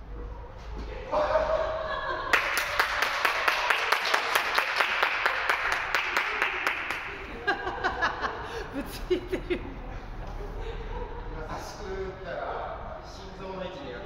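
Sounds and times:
small group applauding: 2.1s - 7.6s.

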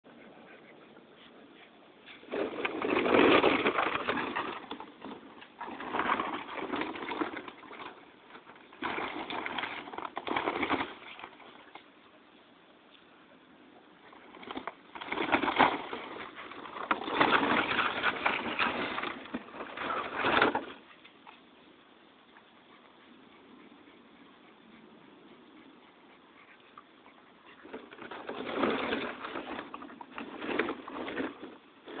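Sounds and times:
plastic tarp rustling and crinkling: 2.1s - 11.7s, 14.0s - 20.8s, 27.7s - 32.0s.

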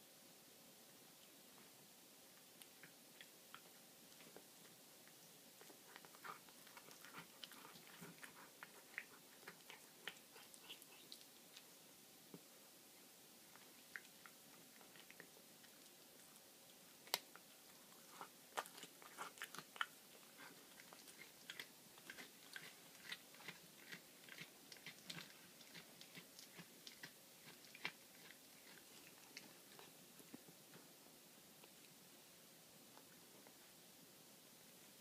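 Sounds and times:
cat crunching bones: 5.6s - 11.7s, 17.0s - 29.9s.

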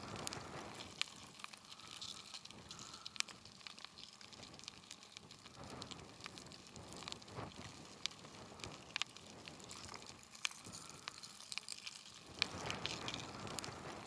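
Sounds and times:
lava crackling: 0.0s - 14.0s
sharp ticks and pops: 0.0s - 14.0s.

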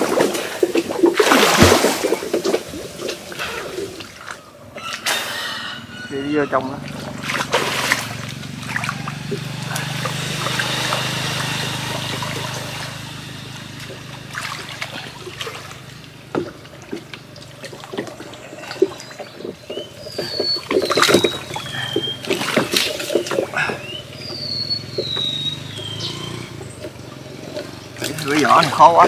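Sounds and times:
knocks in water: 0.0s - 4.2s, 6.8s - 12.8s, 14.3s - 19.6s
water splashing: 0.0s - 5.7s, 6.4s - 29.0s
low rush of water: 0.0s - 24.2s, 24.8s - 29.0s.

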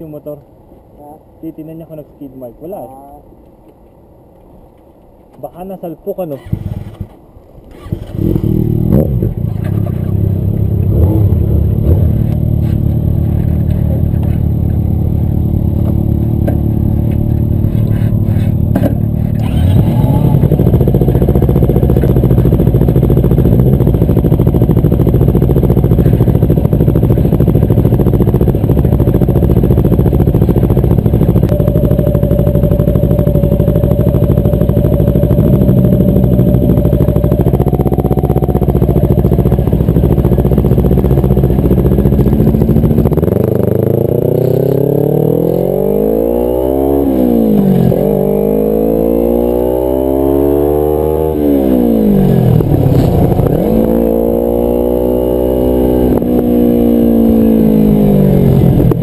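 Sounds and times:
motorcycle engine idling: 7.8s - 44.5s.

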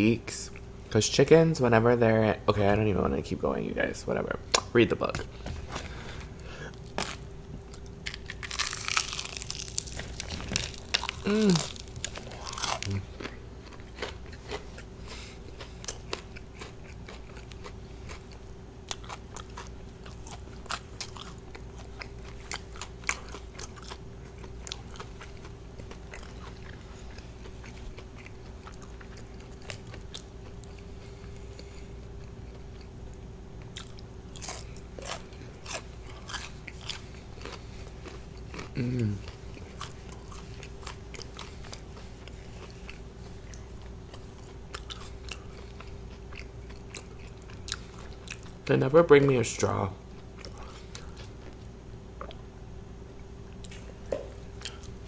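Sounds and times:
chewing: 6.7s - 32.9s, 33.7s - 48.6s, 50.2s - 52.4s, 54.6s - 55.0s
fried chicken crunching: 6.8s - 30.3s, 33.8s - 43.0s.

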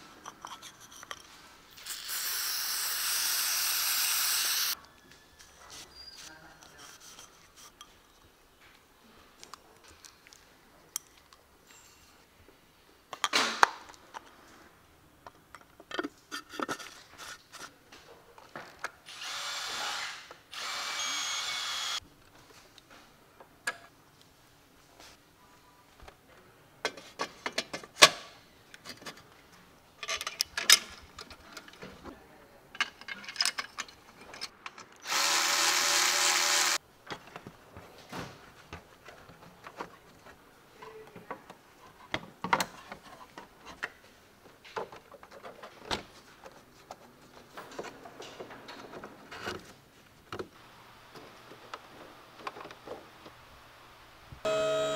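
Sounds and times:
cordless power tool whirring: 1.8s - 4.8s, 19.1s - 22.0s, 35.0s - 36.8s
clicks and clunks of parts handled: 26.8s - 29.3s, 30.0s - 32.1s, 32.7s - 35.0s.

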